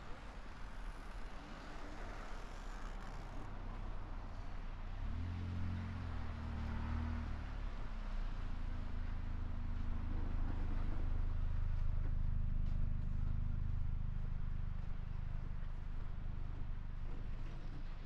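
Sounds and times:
low mechanical drone with hum: 0:09.1 - 0:18.0.

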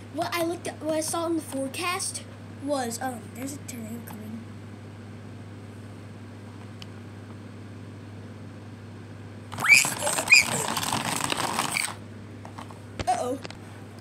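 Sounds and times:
short squeaks: 0:09.6 - 0:10.9
plastic toys clattering: 0:09.6 - 0:12.0.

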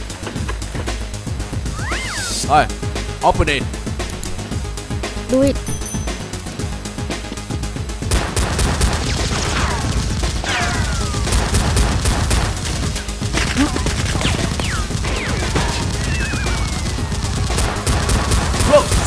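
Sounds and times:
gunfire sound effects: 0:08.1 - 0:19.0
toy blasters firing: 0:13.4 - 0:19.0.

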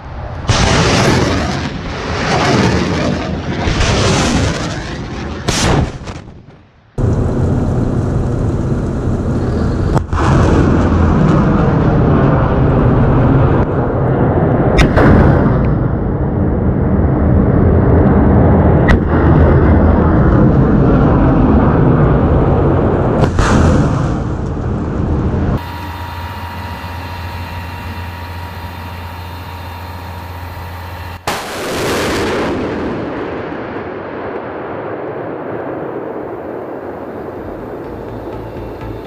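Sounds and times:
rocket launch roar: 0:00.0 - 0:39.0
faint steady hum: 0:25.6 - 0:31.3.

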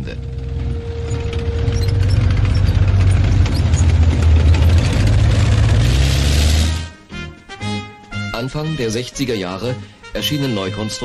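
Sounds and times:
thin steady whine: 0:00.0 - 0:05.0
heavy tracked vehicle engine rumble: 0:00.0 - 0:07.1.

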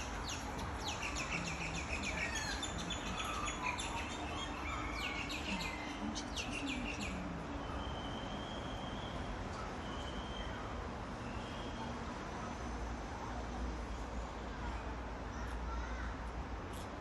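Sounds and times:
small birds chirping: 0:00.0 - 0:09.2
steady low background noise: 0:00.0 - 0:17.0.

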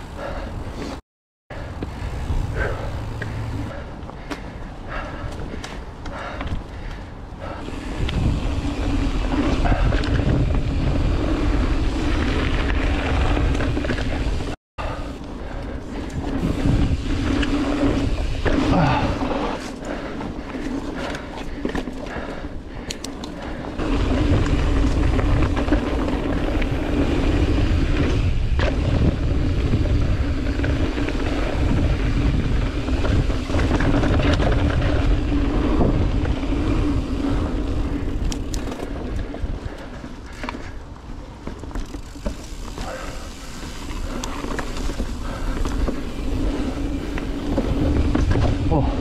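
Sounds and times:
bike tyres rattling over dirt: 0:00.0 - 0:49.0
wind rumbling on microphone: 0:00.0 - 0:49.0
steady hum: 0:01.5 - 0:03.8.

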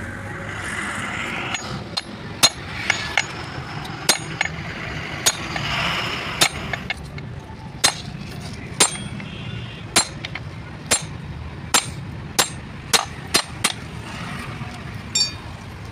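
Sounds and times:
metal parts scraping: 0:01.0 - 0:09.2.

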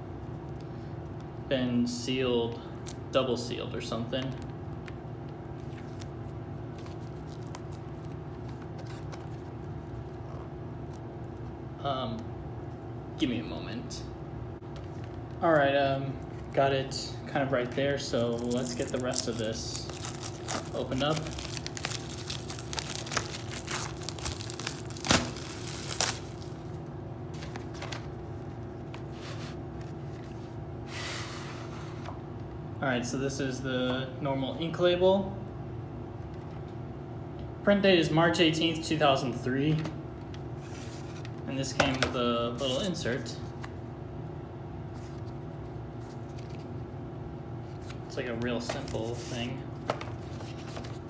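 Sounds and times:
background hum: 0:00.0 - 0:51.0
plastic wrap crinkling: 0:05.6 - 0:10.3, 0:18.1 - 0:26.8
plastic wrap tearing: 0:06.8 - 0:09.4, 0:18.1 - 0:26.8.

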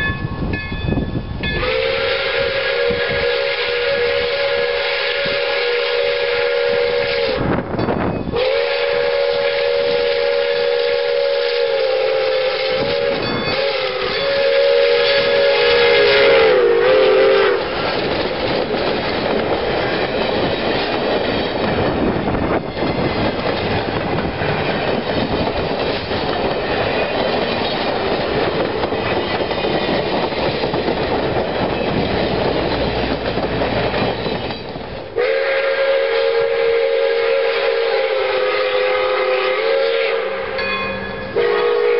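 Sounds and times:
train rumbling and clattering on rails: 0:00.0 - 0:41.9
steam locomotive whistle: 0:01.4 - 0:07.7, 0:08.3 - 0:18.0, 0:35.1 - 0:41.9.

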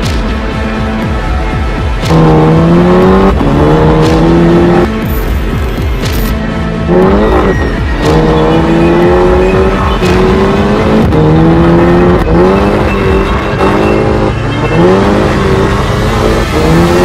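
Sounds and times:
car engine accelerating hard: 0:02.0 - 0:05.0, 0:06.8 - 0:17.0.

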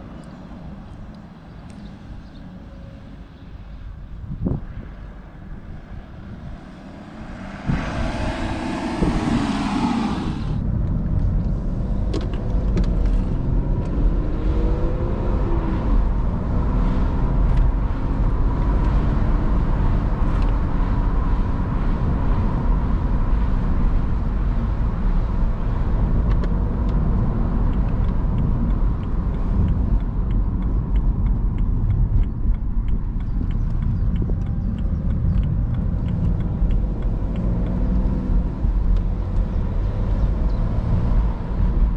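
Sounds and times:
diesel car accelerating: 0:00.0 - 0:41.9
road rumble: 0:00.0 - 0:41.9
wind: 0:00.0 - 0:41.9
loud rushing noise: 0:05.8 - 0:10.7.

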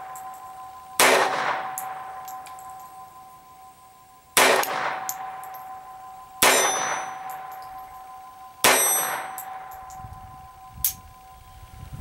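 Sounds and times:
pistol shots: 0:01.0 - 0:02.3, 0:04.4 - 0:05.5, 0:06.4 - 0:07.6, 0:08.6 - 0:09.7.

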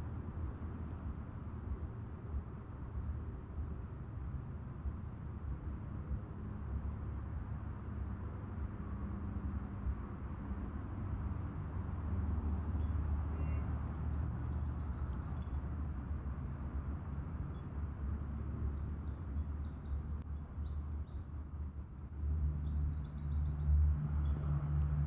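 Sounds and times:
songbird chirping: 0:22.1 - 0:24.7.

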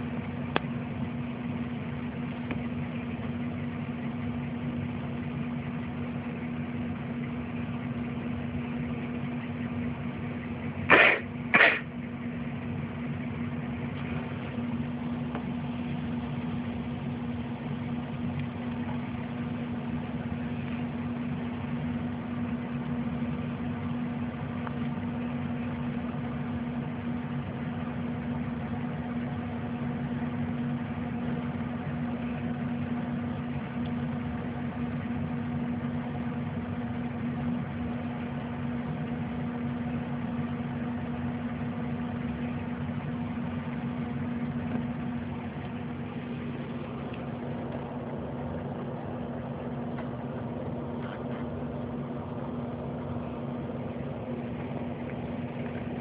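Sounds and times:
low machine hum: 0:00.0 - 0:56.0
short loud noises: 0:10.9 - 0:11.9.

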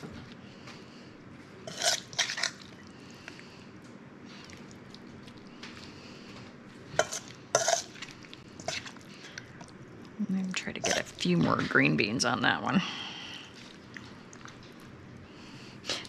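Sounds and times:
utensils scraping and clinking dishes: 0:01.7 - 0:02.7, 0:07.0 - 0:09.0, 0:10.8 - 0:11.7.

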